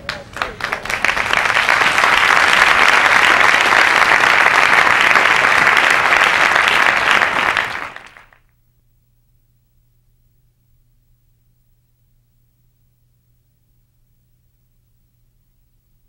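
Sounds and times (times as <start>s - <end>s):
crowd applauding in a hall: 0.0s - 8.5s
faint low hum: 0.0s - 16.0s.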